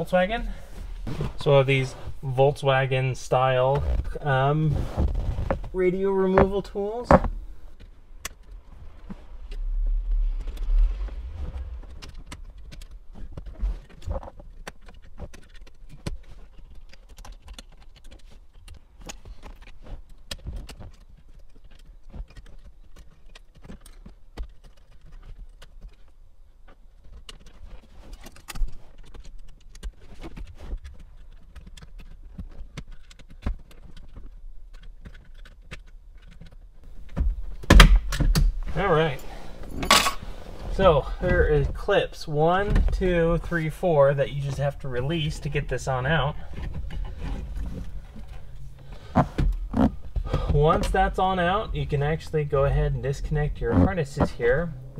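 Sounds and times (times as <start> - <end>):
low rumble: 4.0 - 13.9, 36.9 - 54.9.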